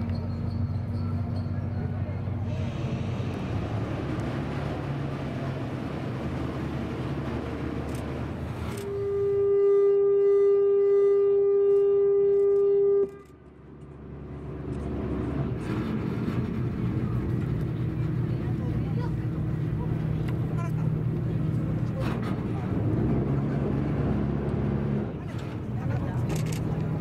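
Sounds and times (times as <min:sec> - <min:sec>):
boat engine rumbling: 0:00.0 - 0:27.0
boat horn blast: 0:08.7 - 0:13.4.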